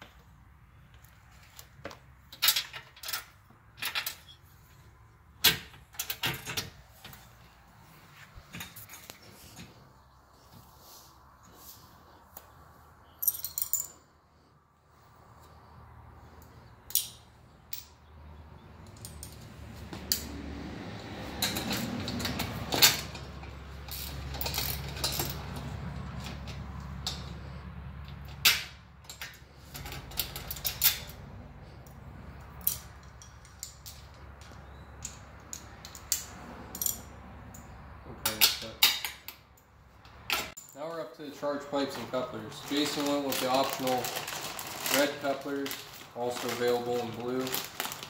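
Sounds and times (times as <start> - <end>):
metal hand tools clinking: 13.2 - 14.1.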